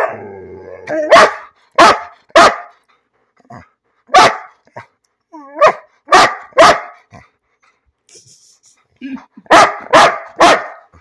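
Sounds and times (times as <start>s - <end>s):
large dog barking: 0.0s - 2.9s, 3.5s - 4.9s, 5.5s - 7.3s, 9.4s - 11.0s
dog whining: 5.3s - 5.7s.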